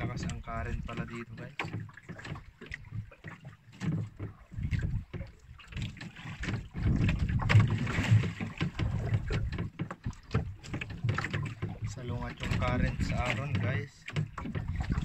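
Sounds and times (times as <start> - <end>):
wind on microphone: 0.0 - 1.2, 4.4 - 5.4, 6.4 - 13.8, 14.6 - 15.0
water sloshing against boat hull: 0.0 - 15.0.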